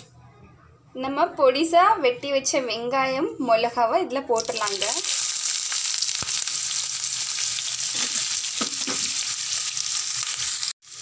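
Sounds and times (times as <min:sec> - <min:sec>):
onions sizzling in hot oil: 0:04.4 - 0:11.0.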